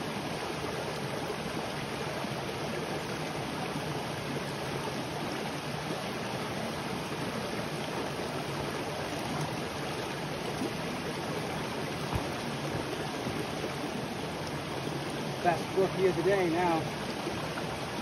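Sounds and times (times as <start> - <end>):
brook running over rocks: 0.0 - 18.0
low thump: 12.0 - 12.9.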